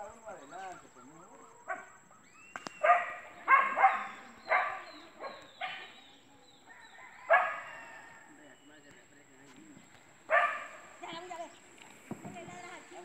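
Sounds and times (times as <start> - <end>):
dog barking: 1.6 - 2.0, 2.8 - 6.0, 7.2 - 8.2, 10.3 - 10.9.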